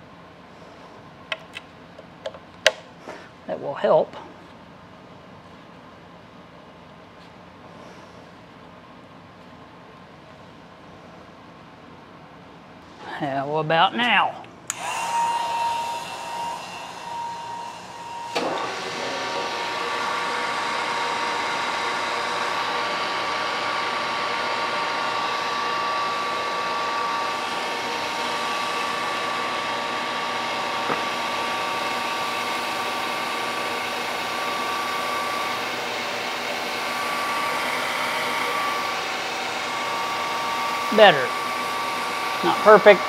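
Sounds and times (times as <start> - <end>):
surface grinder whining and hissing: 14.7 - 43.0.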